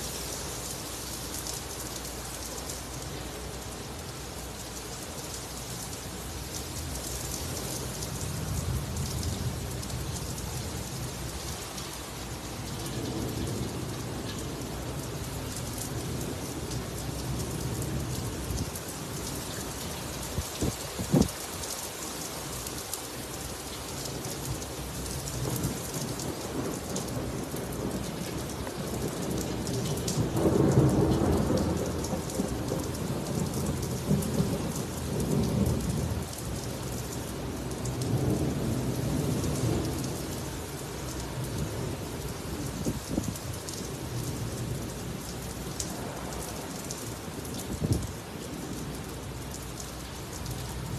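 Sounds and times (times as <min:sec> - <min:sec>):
heavy rain on a roof: 0:00.0 - 0:50.9
thunder rumbling: 0:25.4 - 0:36.3.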